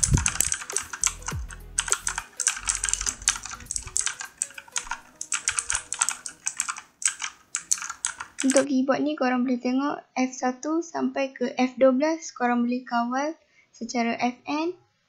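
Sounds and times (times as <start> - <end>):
fast typing on clicky keyboard: 0.0 - 8.7.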